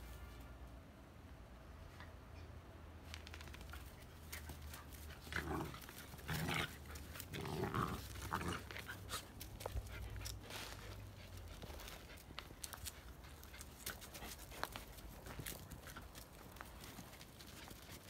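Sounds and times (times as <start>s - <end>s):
scuffling on dirt: 3.2s - 18.0s
puppies growling: 4.9s - 10.0s.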